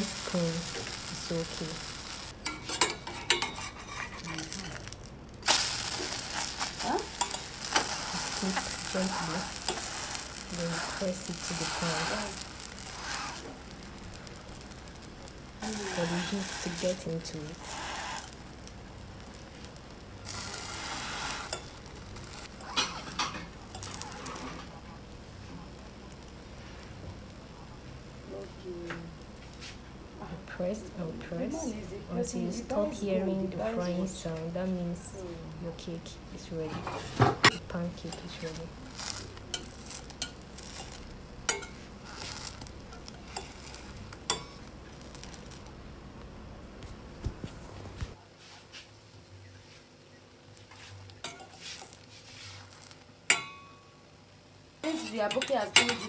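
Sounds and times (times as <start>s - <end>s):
batter sizzling in oil: 0.0s - 56.0s
metal spatula scraping pan: 2.4s - 4.9s, 15.6s - 18.4s, 20.3s - 24.7s, 50.7s - 53.7s, 54.8s - 56.0s.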